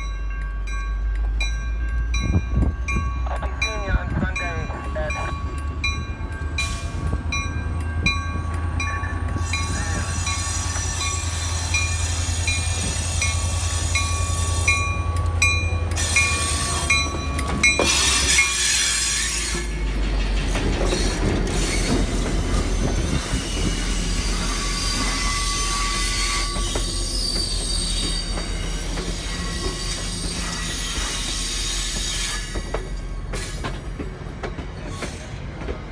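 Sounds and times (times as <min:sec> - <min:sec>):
locomotive bell ringing: 0:00.0 - 0:20.0
diesel locomotive engine drone: 0:00.0 - 0:35.9
train coaches rumbling past: 0:00.0 - 0:35.9.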